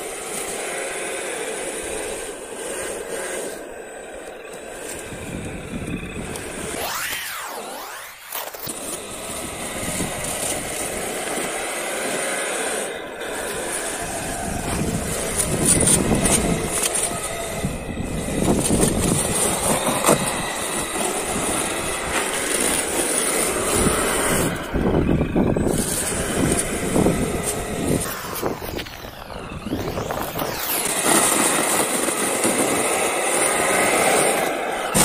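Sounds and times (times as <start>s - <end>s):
plow blade scraping snow: 0.0s - 35.0s
toy truck motor whine: 0.0s - 35.0s.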